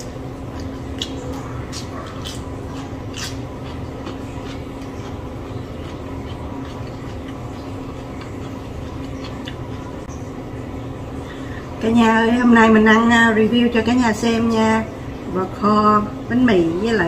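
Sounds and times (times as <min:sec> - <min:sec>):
person chewing food: 0:00.0 - 0:10.2
low room hum: 0:00.0 - 0:17.0
mouth and crunch clicks: 0:00.4 - 0:10.2.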